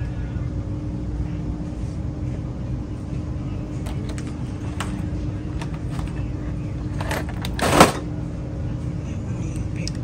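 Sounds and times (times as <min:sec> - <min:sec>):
constant hum: 0:00.0 - 0:10.0
store background rumble: 0:00.0 - 0:10.0.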